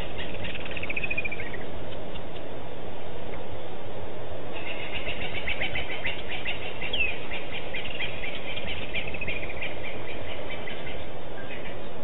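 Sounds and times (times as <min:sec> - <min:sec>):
chorus of high chirps: 0:00.0 - 0:02.5, 0:04.6 - 0:12.0
low background noise: 0:00.0 - 0:12.0
descending whistled bird call: 0:04.6 - 0:11.9.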